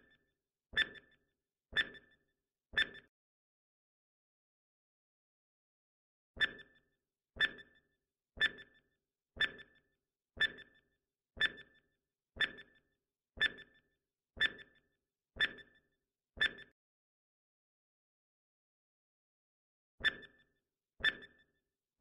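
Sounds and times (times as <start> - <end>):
timer tick with ringing tone: 0.8 - 3.1, 6.4 - 16.8, 20.0 - 21.6.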